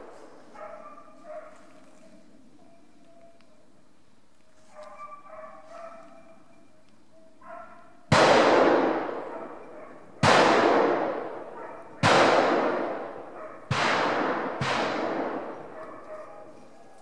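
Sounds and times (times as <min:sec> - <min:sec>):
gunshots echoing: 0:08.1 - 0:16.1.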